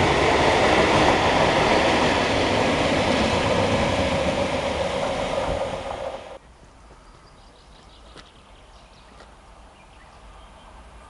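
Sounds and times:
freight train passing: 0:00.0 - 0:06.4.

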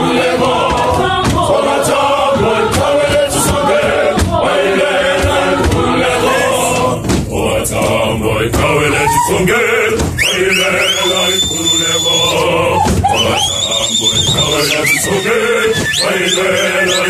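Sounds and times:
choir singing: 0:00.0 - 0:17.0.

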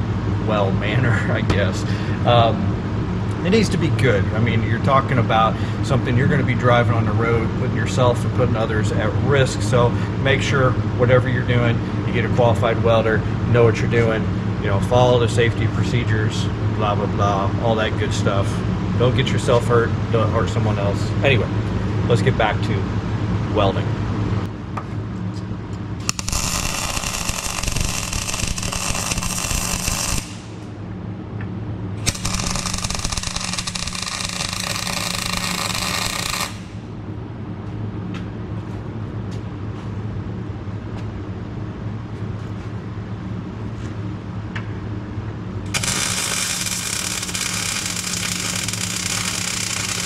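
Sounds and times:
steady low hum: 0:00.0 - 0:50.0
welder arc crackling: 0:26.0 - 0:30.8, 0:32.0 - 0:36.9, 0:45.7 - 0:50.0.

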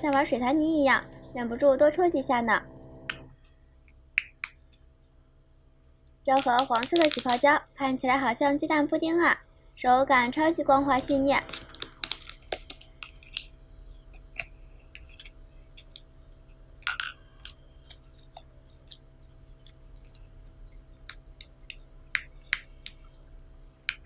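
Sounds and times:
faint steady hum: 0:00.0 - 0:24.0
slime sticky clicks and pops: 0:06.3 - 0:07.5
slime squelch: 0:06.3 - 0:07.8, 0:10.7 - 0:24.0.

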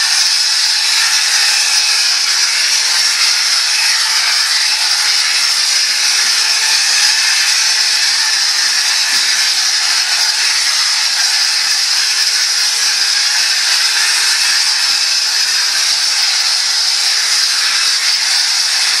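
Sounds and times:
plaster spray gun hissing: 0:00.0 - 0:19.0.

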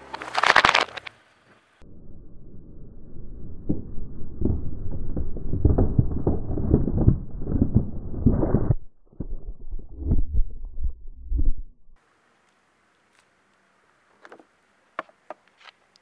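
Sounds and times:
plastic bottles crackling and popping: 0:00.0 - 0:01.1
scattered cracks: 0:00.0 - 0:01.2, 0:03.6 - 0:11.0
low rumble: 0:01.8 - 0:12.0.

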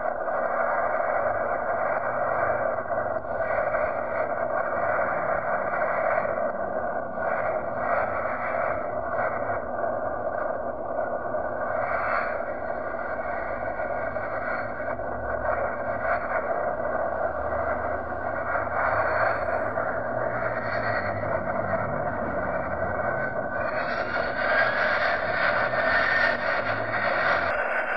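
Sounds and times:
distant jet engines roaring: 0:00.0 - 0:27.9.

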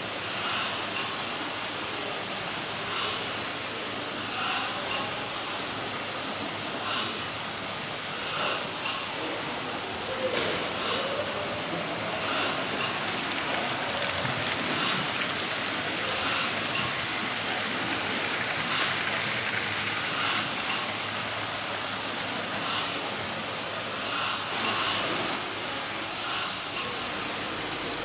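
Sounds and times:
model trains running on track: 0:00.0 - 0:28.0.

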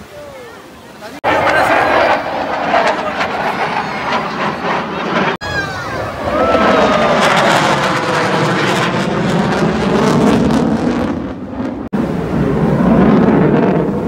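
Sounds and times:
jet aircraft passing overhead: 0:01.2 - 0:14.0.

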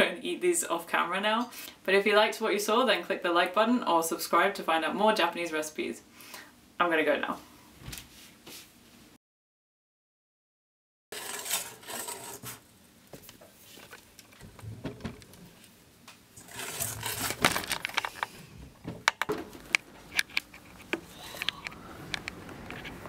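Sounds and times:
whisk scraping a metal bowl: 0:11.1 - 0:12.6, 0:16.4 - 0:17.3.

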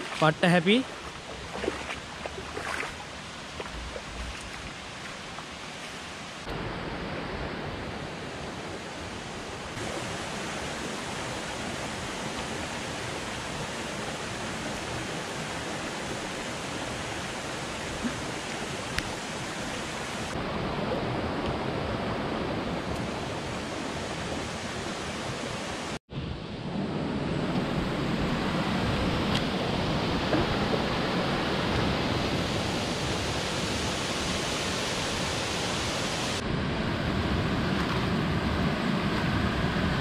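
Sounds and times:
water flowing over rocks: 0:00.0 - 0:20.4, 0:28.8 - 0:36.4.

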